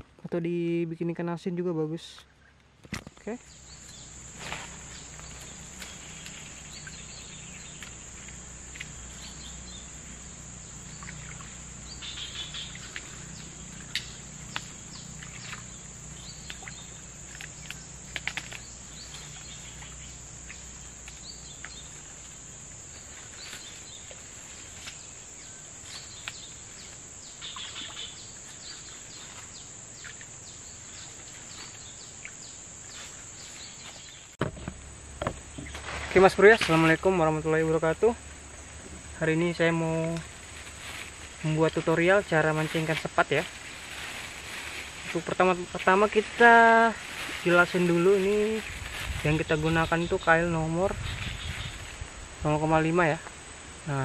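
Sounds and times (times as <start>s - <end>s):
insects droning: 0.0s - 54.0s
bird chirps: 3.4s - 22.0s, 24.8s - 34.4s.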